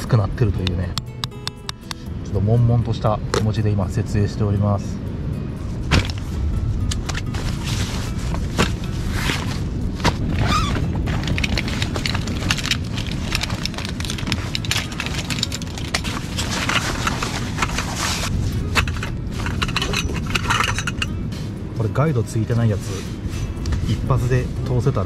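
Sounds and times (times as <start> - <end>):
steady low rumble: 0.0 - 25.0
nylon fabric rustling: 7.0 - 21.1.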